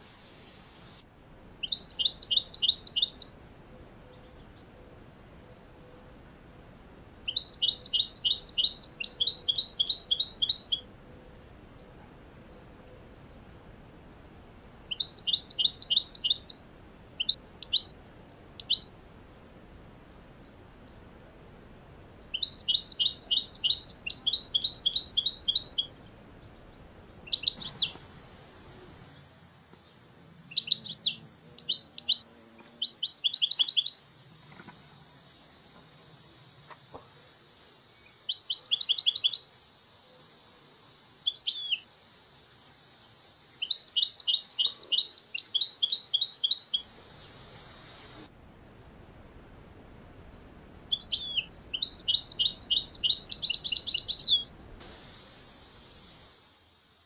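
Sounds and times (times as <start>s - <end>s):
finch twittering trills: 1.5s - 3.4s, 7.2s - 10.9s, 14.8s - 18.0s, 22.2s - 28.0s, 50.9s - 54.5s.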